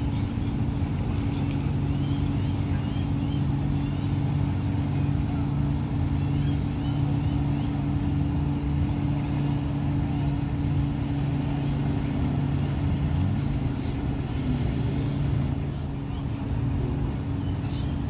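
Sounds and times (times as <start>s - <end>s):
engine droning: 0.0s - 18.0s.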